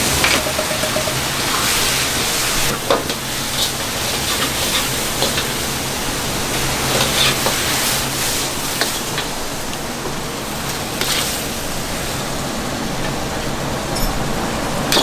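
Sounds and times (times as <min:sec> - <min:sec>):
vegetables sizzling in a wok: 0:01.4 - 0:12.6.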